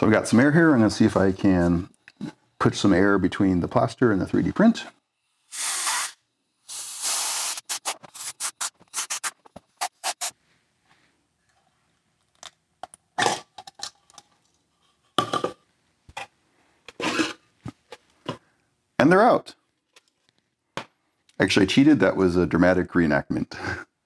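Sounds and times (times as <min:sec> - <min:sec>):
compressed air blow gun hissing: 0:05.5 - 0:10.3.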